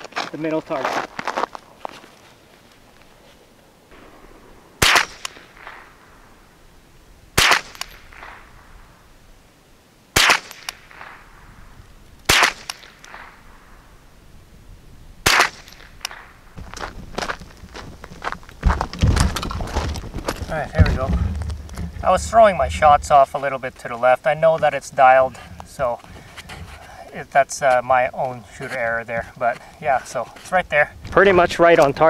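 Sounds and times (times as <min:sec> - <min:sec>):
rifle shots with echo: 0:03.9 - 0:09.0, 0:10.2 - 0:13.9, 0:15.2 - 0:16.5.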